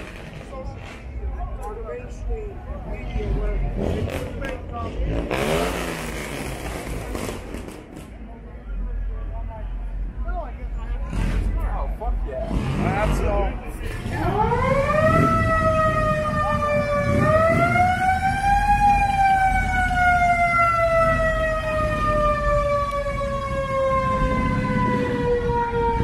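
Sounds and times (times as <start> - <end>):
low rumble of street noise: 0.0 - 26.0
siren wailing: 14.2 - 26.0.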